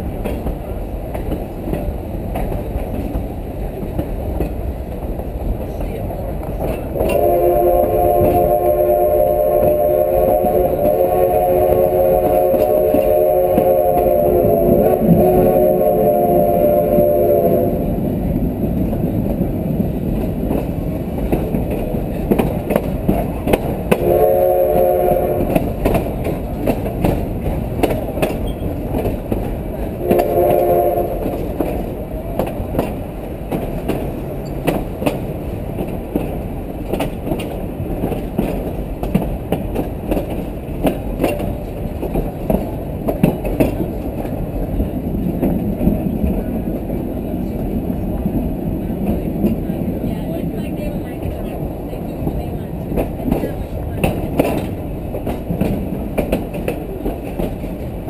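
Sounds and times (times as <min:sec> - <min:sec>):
train horn chord: 0:07.0 - 0:17.9, 0:23.9 - 0:25.8, 0:30.0 - 0:31.7.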